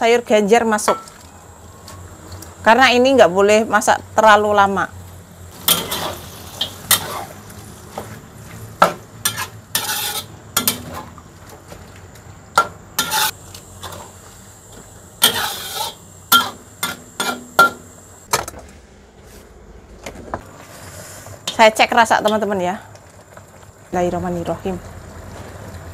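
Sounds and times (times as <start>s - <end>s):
utensil knocking and scraping pot: 8.8s - 11.0s, 13.0s - 14.0s, 15.2s - 17.8s
faint simmering hiss: 20.4s - 25.9s.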